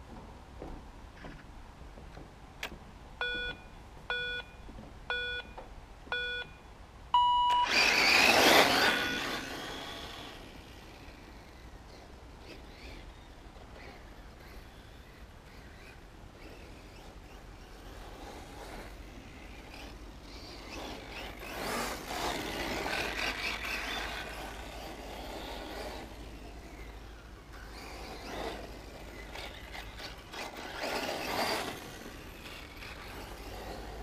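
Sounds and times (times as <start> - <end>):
radio-controlled car motors: 7.6 - 34.0.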